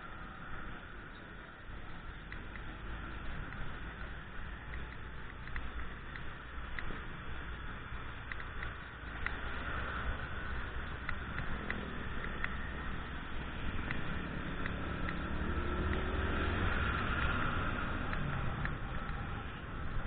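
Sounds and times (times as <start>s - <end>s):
wind and road noise: 0.0s - 20.0s
light clicks: 1.9s - 13.0s.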